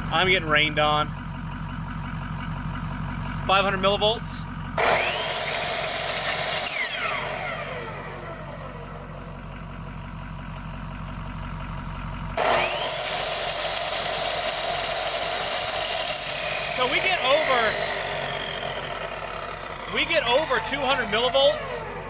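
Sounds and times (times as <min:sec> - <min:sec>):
diesel truck engine idling: 0:00.0 - 0:22.0
chop saw motor whine: 0:04.7 - 0:09.6, 0:12.3 - 0:22.0.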